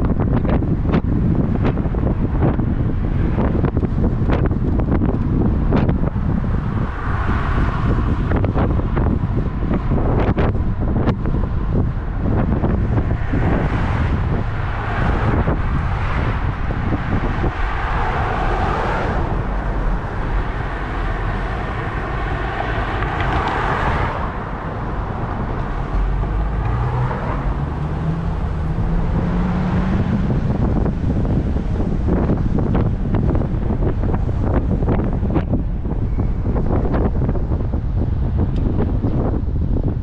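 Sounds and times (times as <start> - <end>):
car road and wind noise: 0.0 - 40.0
engine note rising: 12.4 - 36.6.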